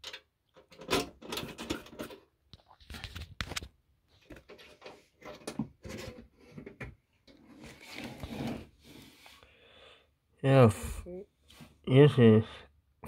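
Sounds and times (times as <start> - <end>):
metal door rubbing and scraping: 7.4 - 9.1.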